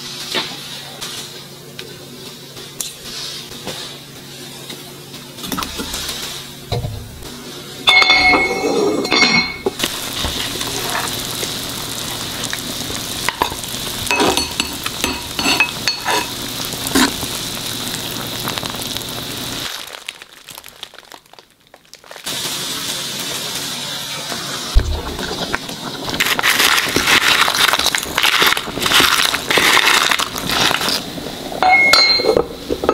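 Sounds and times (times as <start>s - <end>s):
broth boiling in a pot: 0.0s - 32.9s
ladle clinking and scraping pot: 7.9s - 9.8s, 13.3s - 16.4s.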